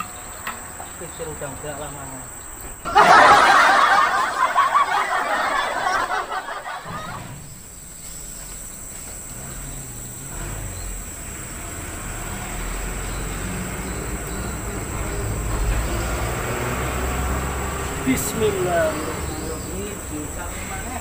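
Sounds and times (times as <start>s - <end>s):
engine humming: 0.0s - 21.0s
high insect buzz: 6.8s - 21.0s.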